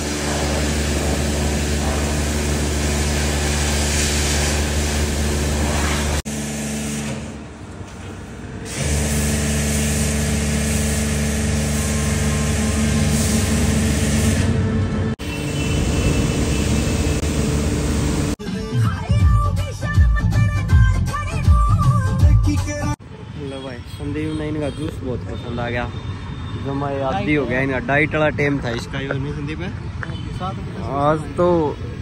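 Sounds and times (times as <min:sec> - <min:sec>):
spray hissing: 0:00.0 - 0:04.9, 0:08.7 - 0:12.1
pressure washer pump humming: 0:00.0 - 0:18.4.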